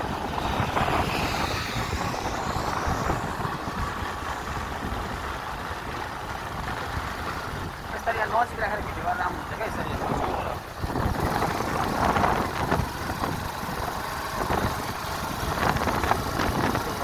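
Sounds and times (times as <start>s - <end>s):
faint whine: 0.0s - 6.2s
vehicle engine and road noise: 0.0s - 17.0s
wind buffeting microphone: 0.0s - 17.0s.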